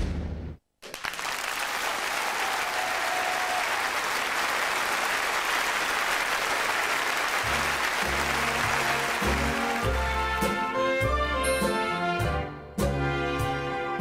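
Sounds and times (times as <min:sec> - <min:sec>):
audience applause: 0:00.8 - 0:10.4
music: 0:07.4 - 0:14.0.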